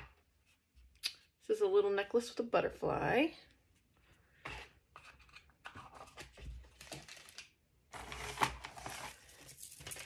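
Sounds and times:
packaging clicks and rustles: 5.2 - 10.0
plastic bag crinkling: 6.8 - 10.0.

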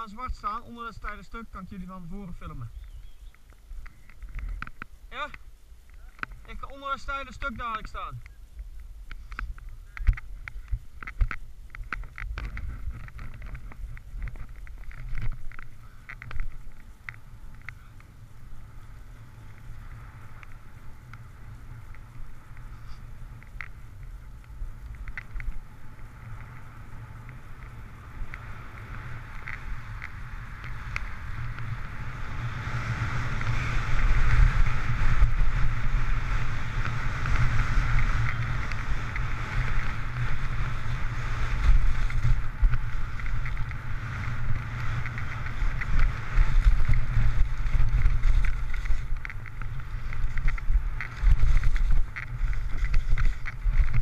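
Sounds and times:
wind buffeting microphone: 0.0 - 54.0
skis hissing over snow: 17.4 - 25.1, 25.7 - 54.0.

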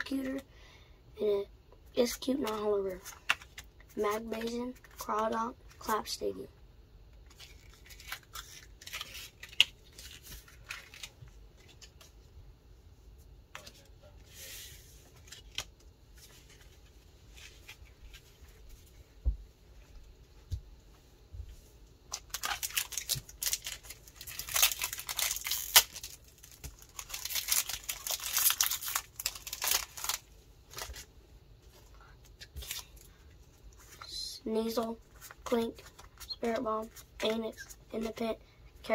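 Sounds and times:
foil wrapper tearing and crinkling: 7.3 - 11.2, 22.1 - 31.1, 32.5 - 33.0.

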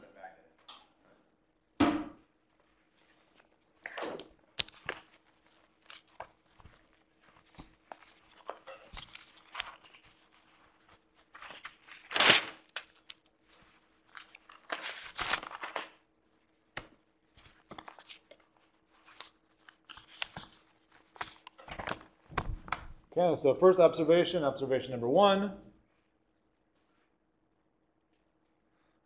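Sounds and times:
rustling and crackling: 2.5 - 16.0.

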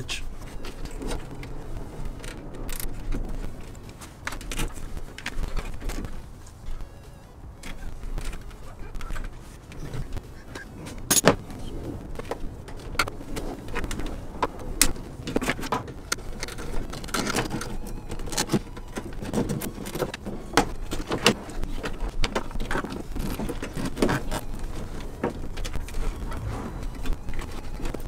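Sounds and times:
tools and fasteners clicking and rattling: 7.6 - 11.4, 14.8 - 26.1.

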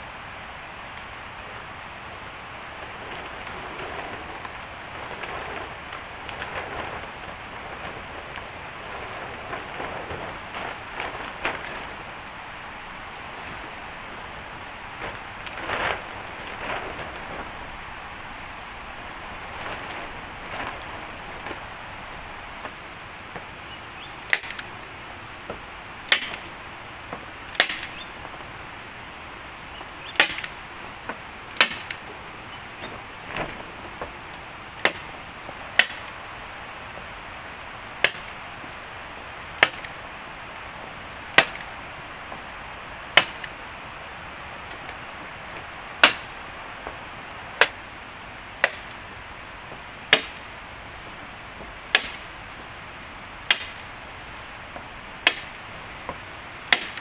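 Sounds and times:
steady hiss: 0.0 - 57.0
wood being chopped: 24.2 - 24.7, 25.5 - 26.5, 27.1 - 28.0, 30.1 - 32.1, 34.8 - 35.1, 35.8 - 36.1, 38.0 - 38.4, 39.6 - 39.9, 41.3 - 41.7, 43.1 - 43.5, 46.0 - 46.3, 47.6 - 47.8, 48.6 - 49.0, 50.1 - 50.5, 51.9 - 52.3, 53.4 - 53.9, 55.2 - 57.0.

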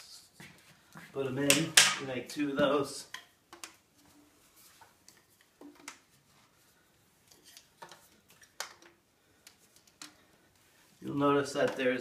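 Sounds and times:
plastic pipes knocking and clicking: 1.5 - 2.0, 2.6 - 3.8, 5.0 - 6.1, 7.5 - 9.0.

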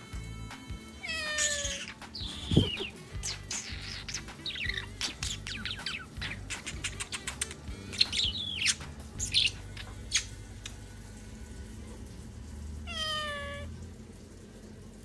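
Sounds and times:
cat meowing: 1.0 - 2.9, 12.8 - 13.7
budgerigar chirps and clicks: 1.2 - 10.8.

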